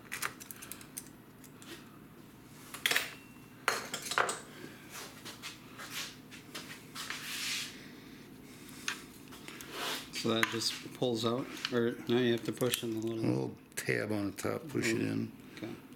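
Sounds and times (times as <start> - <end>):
parts clicking and clinking: 0.1 - 1.6.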